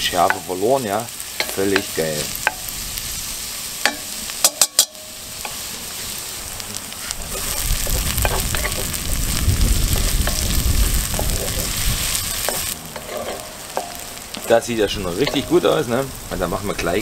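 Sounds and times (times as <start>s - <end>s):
food sizzling in hot oil: 0.0s - 17.0s
low rumble: 6.5s - 13.0s.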